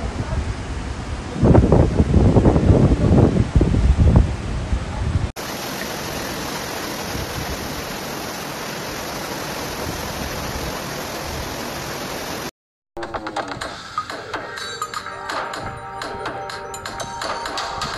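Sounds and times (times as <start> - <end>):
floodwater rushing: 5.4 - 12.5.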